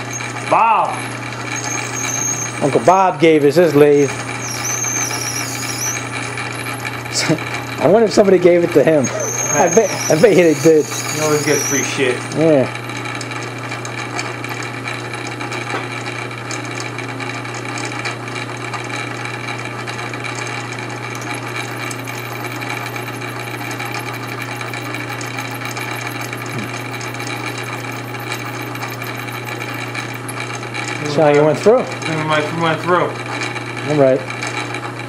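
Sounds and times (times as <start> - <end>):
drill boring into metal: 0.0 - 15.8, 19.0 - 34.8
metal lathe motor hum: 0.0 - 35.0
scratchy ticking from cutting: 1.2 - 12.5, 20.3 - 31.2.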